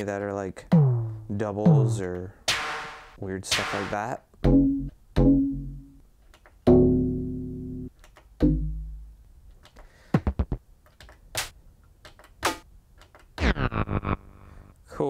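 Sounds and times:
bassy drum samples: 0.7s - 5.9s, 13.4s - 14.6s.

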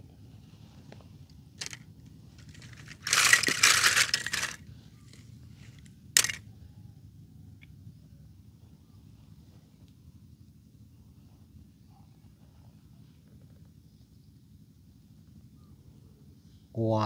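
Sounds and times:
toy cars clattering in plastic basket: 1.6s - 1.8s, 2.4s - 6.4s
sharp clack: 6.2s - 6.4s.

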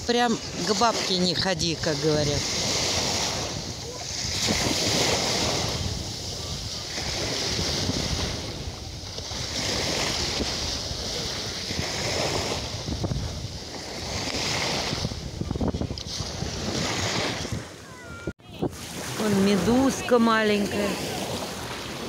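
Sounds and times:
small waves lapping: 0.0s - 22.0s
wind rumbling on microphone: 0.0s - 22.0s.

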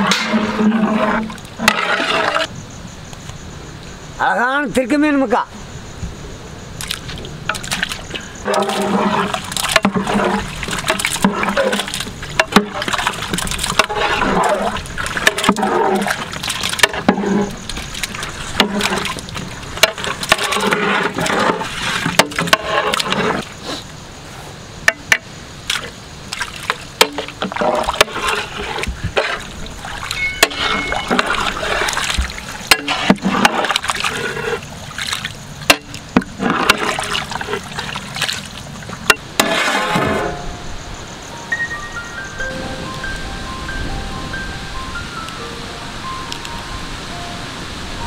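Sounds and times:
wet plops and splashes: 6.8s - 17.0s, 29.2s - 34.2s, 34.8s - 39.1s.

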